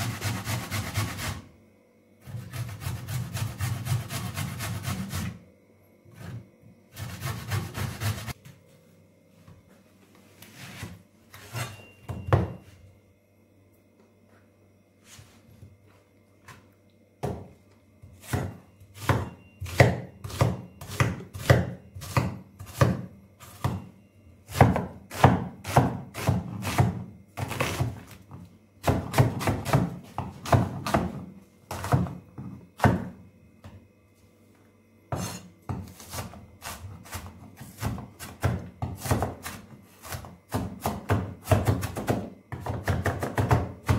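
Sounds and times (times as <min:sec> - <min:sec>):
knife chopping on wooden board: 0:18.2 - 0:23.8, 0:24.5 - 0:28.1.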